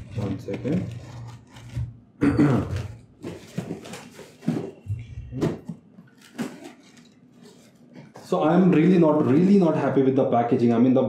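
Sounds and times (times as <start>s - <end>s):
box cutter scraping tape and cardboard: 0.2s - 1.9s.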